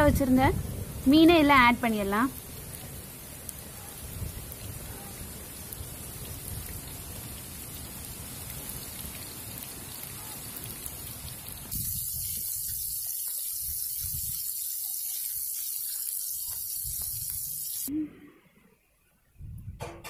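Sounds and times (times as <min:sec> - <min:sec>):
fish sizzling in hot oil: 0:01.0 - 0:17.9.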